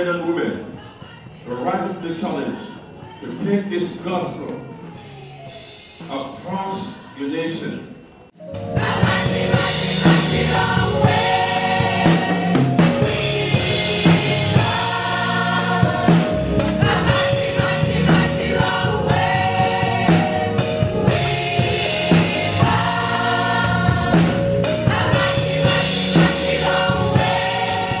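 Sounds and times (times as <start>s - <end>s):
choir singing gospel song: 0.0s - 28.0s
band playing: 8.4s - 28.0s
regular drum beat: 8.6s - 28.0s.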